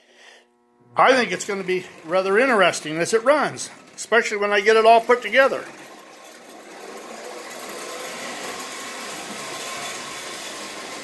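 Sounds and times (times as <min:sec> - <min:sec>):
model locomotive running on track: 0:01.1 - 0:11.0.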